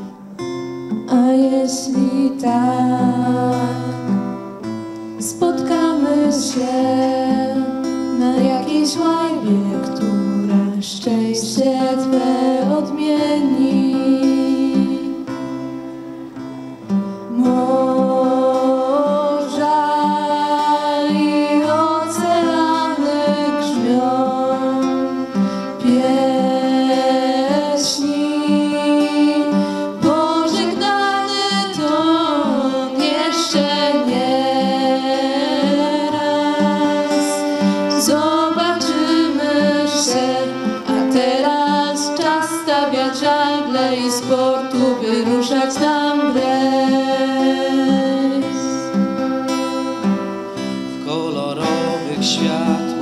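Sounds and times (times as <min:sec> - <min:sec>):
acoustic guitar: 0:00.0 - 0:53.0
women singing: 0:01.0 - 0:04.6, 0:05.2 - 0:15.5, 0:17.2 - 0:49.9
violin playing: 0:11.5 - 0:53.0.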